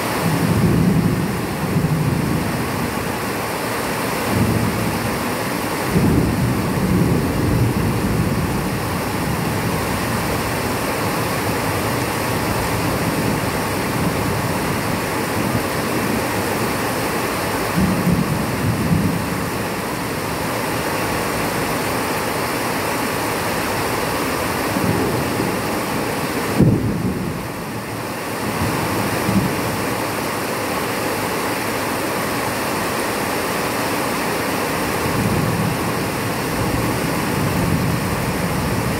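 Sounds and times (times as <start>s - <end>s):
rain falling: 0.0s - 38.9s
thunder rumbling: 24.6s - 29.8s.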